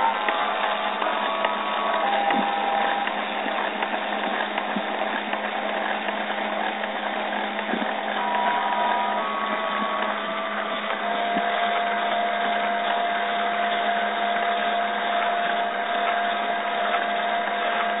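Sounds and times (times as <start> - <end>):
mill spindle whining: 0.0 - 18.0.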